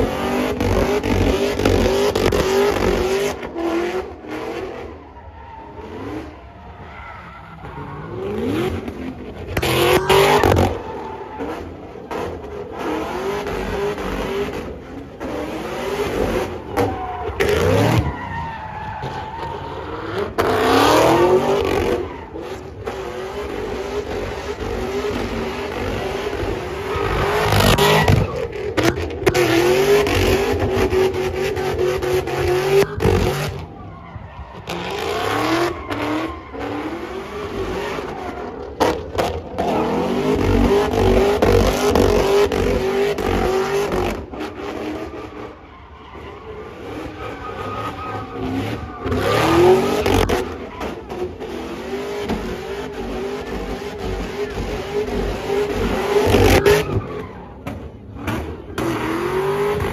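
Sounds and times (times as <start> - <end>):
car engine revving high: 7.6 - 18.1, 19.4 - 33.7, 34.6 - 45.5, 46.6 - 59.9
tyres squealing: 45.0 - 51.3.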